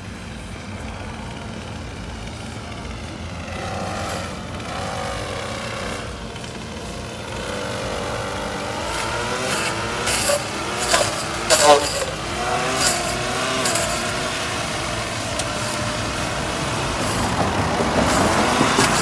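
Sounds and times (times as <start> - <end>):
engine running: 0.0 - 19.0.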